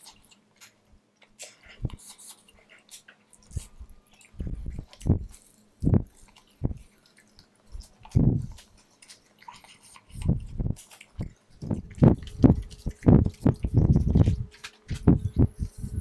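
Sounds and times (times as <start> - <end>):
person chewing wetly: 0.0 - 15.6.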